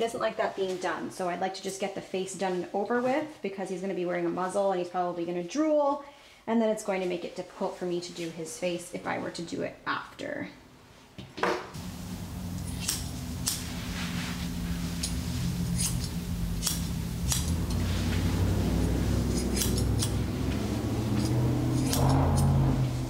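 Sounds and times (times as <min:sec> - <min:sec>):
low hum: 0:11.8 - 0:23.0
shears snipping fur: 0:12.1 - 0:22.6.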